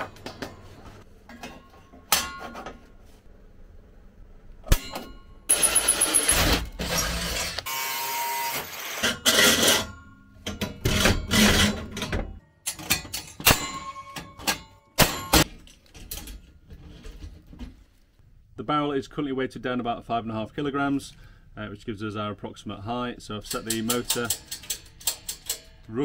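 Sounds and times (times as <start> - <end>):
sharp metallic clangs: 4.6 - 6.4, 12.6 - 16.4
steel tubes knocking and clanking: 23.5 - 25.8.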